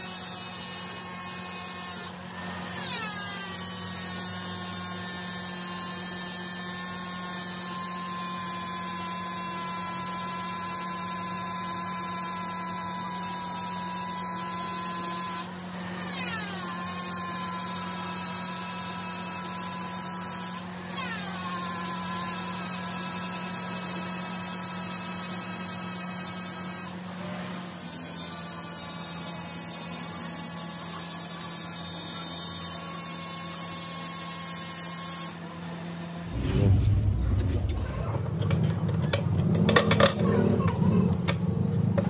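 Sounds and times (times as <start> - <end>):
electric grinder whining: 0.0 - 36.4
grinder parts clattering: 37.6 - 42.0.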